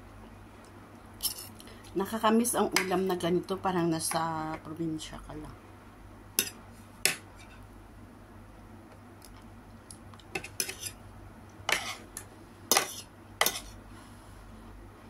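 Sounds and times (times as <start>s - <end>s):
cutlery scraping and clinking on plate: 1.2s - 1.5s, 10.4s - 11.0s, 11.7s - 12.0s, 12.7s - 13.7s.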